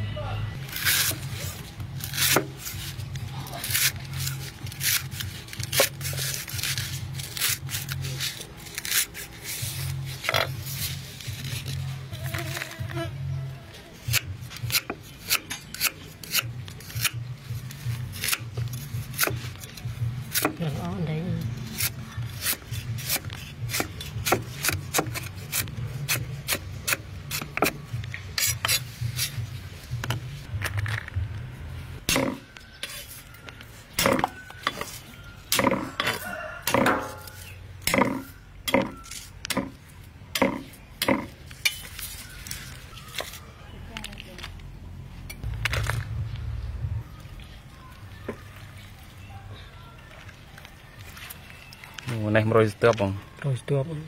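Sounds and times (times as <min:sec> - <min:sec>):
knife slicing root on wooden board: 0:02.0 - 0:02.8, 0:14.1 - 0:17.2, 0:21.7 - 0:27.8.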